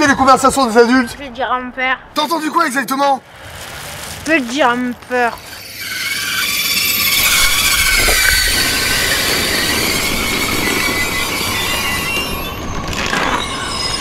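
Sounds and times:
train low rumble: 3.4 - 14.0
train wheels squealing on rail: 5.3 - 14.0.

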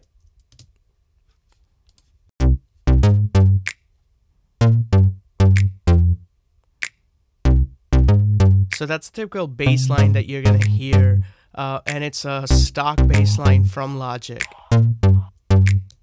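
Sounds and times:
deep synth bass notes: 2.4 - 3.7, 4.6 - 6.2, 7.5 - 8.8, 9.7 - 11.3, 12.5 - 13.8, 14.6 - 15.9
sharp snap sample: 5.5 - 5.8, 10.5 - 10.9, 13.2 - 13.5, 15.5 - 16.0.

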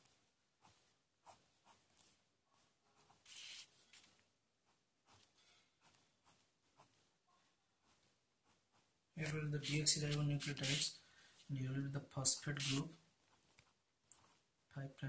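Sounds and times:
pen scratching on paper: 0.6 - 7.1, 7.8 - 9.0, 9.6 - 10.9, 12.3 - 14.4.

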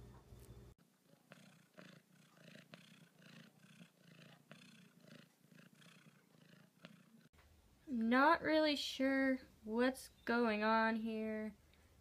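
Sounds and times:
cat purring: 0.9 - 7.3.

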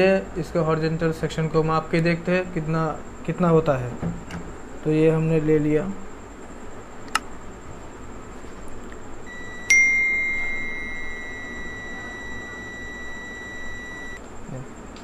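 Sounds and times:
multimeter continuity beep: 9.3 - 14.2.

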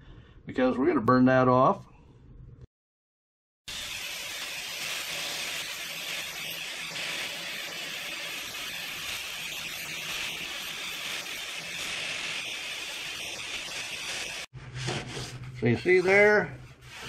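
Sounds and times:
angle grinder sanding metal: 3.7 - 14.5.

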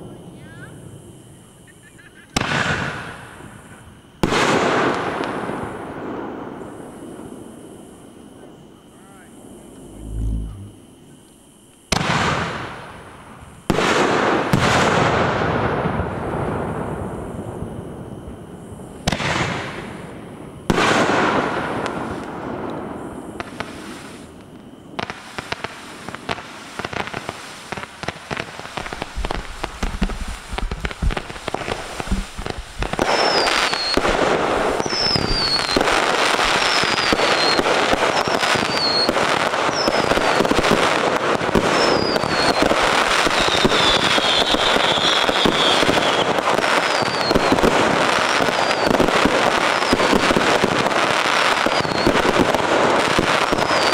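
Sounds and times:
fireworks crackling pops: 1.8 - 6.6, 9.6 - 17.5, 18.8 - 53.9
fireworks bang: 2.3 - 3.2, 11.9 - 13.0, 13.7 - 17.0, 25.0 - 51.0
falling whistles: 33.0 - 34.2, 34.8 - 35.9, 36.5 - 40.5, 41.6 - 49.0, 51.6 - 52.2, 53.5 - 53.9.

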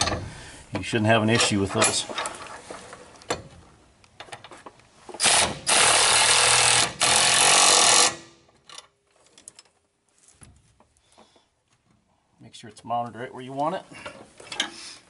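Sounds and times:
impact wrench hammering nuts: 5.2 - 8.3.

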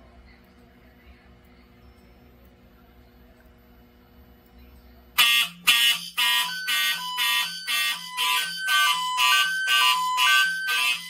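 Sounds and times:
pulsed fire alarm horn: 5.2 - 11.0.

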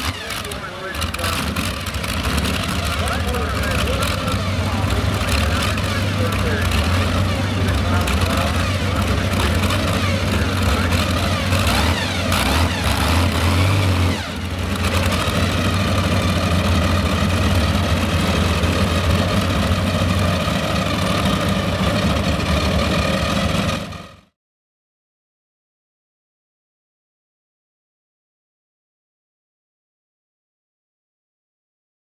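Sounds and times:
tractor engines idling: 0.0 - 24.3.

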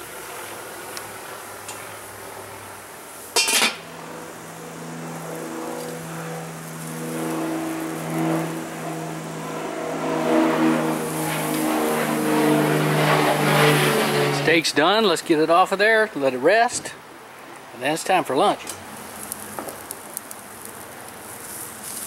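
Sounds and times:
sizzling hiss: 0.0 - 9.4, 18.7 - 22.0
motor-like hum: 0.0 - 14.6.

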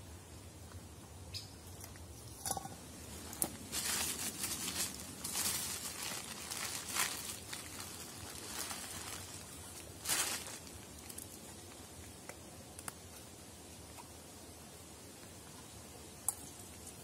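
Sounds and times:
metal camp pots knocking: 2.2 - 2.8
plastic bag crinkling: 3.3 - 11.5.

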